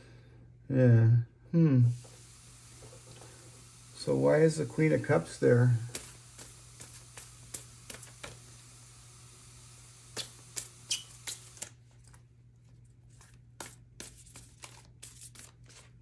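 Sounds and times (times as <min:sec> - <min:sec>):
cards being shuffled: 0:05.8 - 0:08.5, 0:10.1 - 0:16.0.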